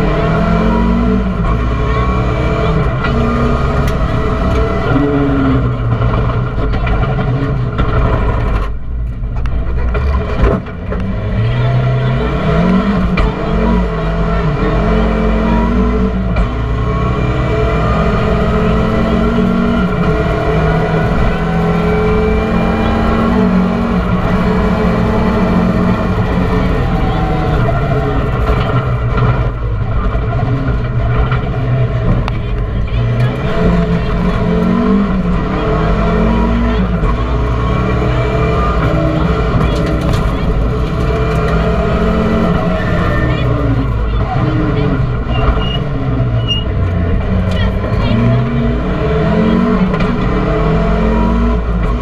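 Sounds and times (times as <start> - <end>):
rally car engine revving: 0.0 - 52.0.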